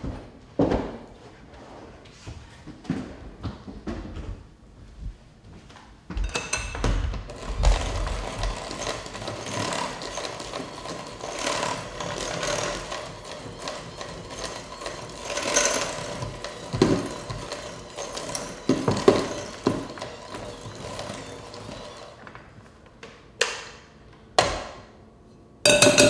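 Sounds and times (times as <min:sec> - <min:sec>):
electric hand mixer running: 0:07.2 - 0:22.3.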